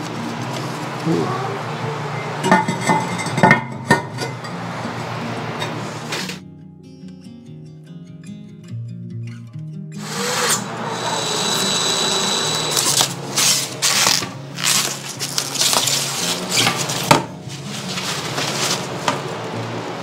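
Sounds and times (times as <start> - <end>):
cordless drill running: 10.0 - 13.3
wrapping crinkling: 12.8 - 19.0.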